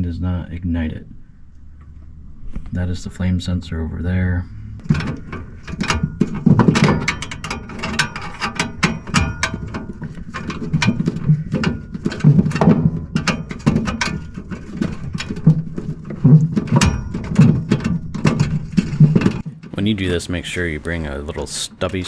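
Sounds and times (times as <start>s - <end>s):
handling and rubbing noise: 4.4s - 22.0s.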